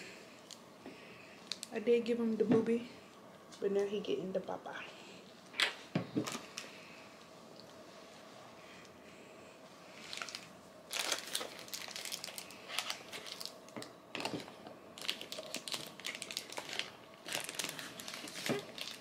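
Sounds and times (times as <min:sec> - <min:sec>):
rustling and crinkling: 0:10.0 - 0:19.0.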